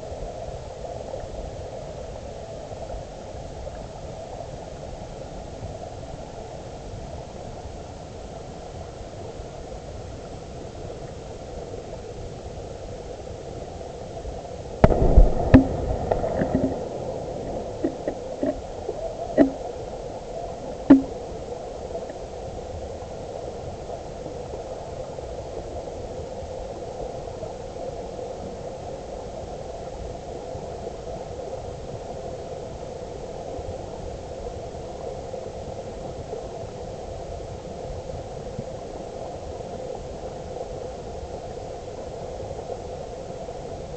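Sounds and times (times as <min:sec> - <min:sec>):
loud underwater knocks: 0:14.8 - 0:18.6, 0:19.4 - 0:19.6, 0:20.9 - 0:21.1.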